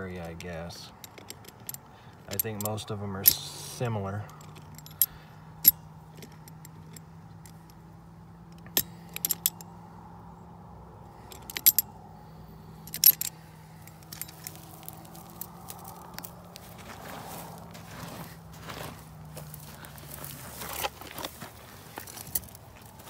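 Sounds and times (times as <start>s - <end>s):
copper wire ticks: 0.0s - 7.9s, 11.2s - 12.0s, 12.8s - 16.8s
steady low hum: 0.0s - 23.0s
wrench clinking on metal clamp: 0.3s - 7.8s, 8.5s - 9.8s, 11.2s - 12.0s, 12.8s - 16.5s.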